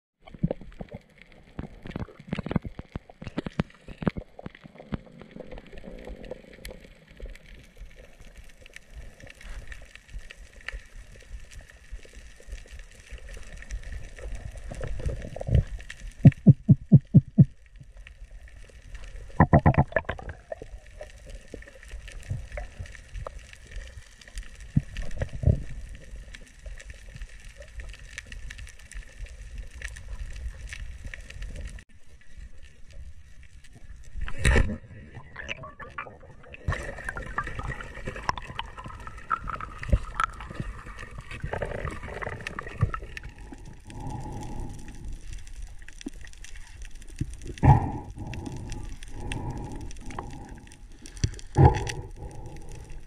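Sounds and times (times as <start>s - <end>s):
diver's mouth clicks underwater: 19.4s - 20.4s
underwater hiss: 36.4s - 45.8s, 47.4s - 53.0s.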